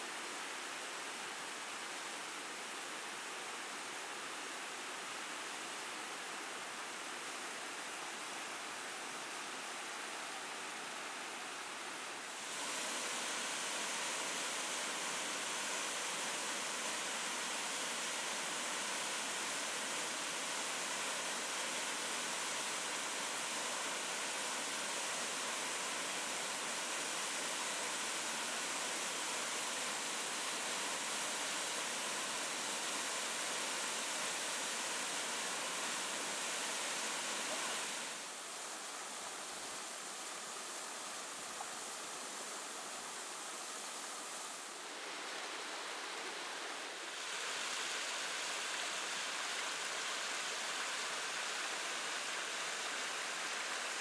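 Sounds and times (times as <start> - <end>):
waterfall rushing: 12.2 - 54.0.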